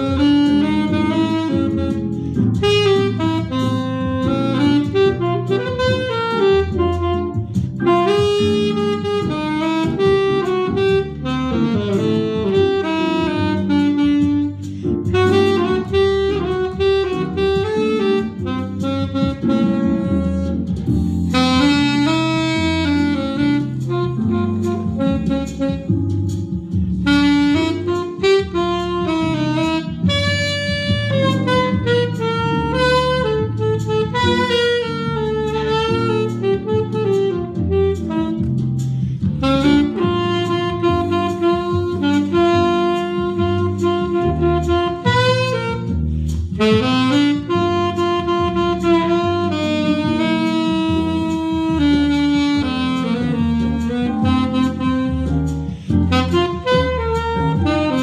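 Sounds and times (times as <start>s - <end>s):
alto saxophone improvising jazz: 0.0s - 58.0s.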